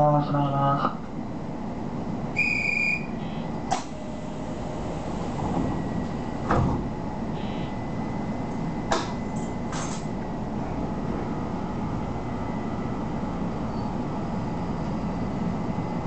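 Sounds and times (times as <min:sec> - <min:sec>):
low train rumble: 0:00.0 - 0:16.0
short electronic beep: 0:02.4 - 0:03.5, 0:07.4 - 0:07.8
sliding doors knocking: 0:04.4 - 0:07.0.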